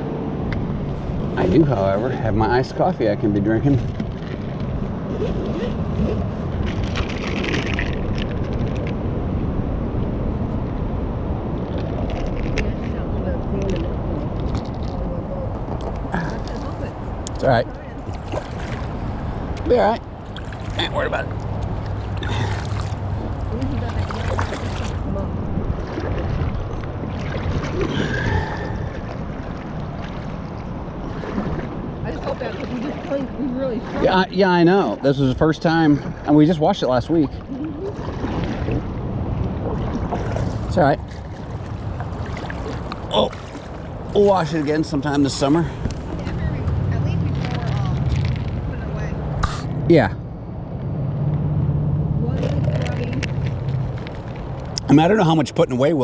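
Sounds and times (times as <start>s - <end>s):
wind buffeting microphone: 0.0s - 55.2s
light water splashing: 0.5s - 9.0s, 11.6s - 49.7s
kayak paddles dipping in water: 3.6s - 8.9s, 18.0s - 48.6s.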